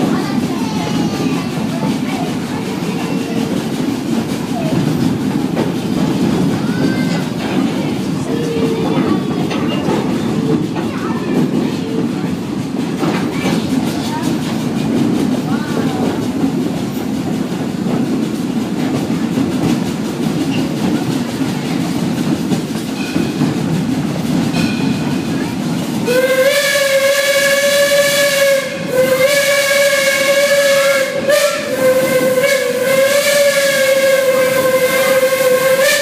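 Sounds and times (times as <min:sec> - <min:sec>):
train rumbling on track: 0:00.0 - 0:36.0
steam whistle blasts: 0:26.0 - 0:36.0.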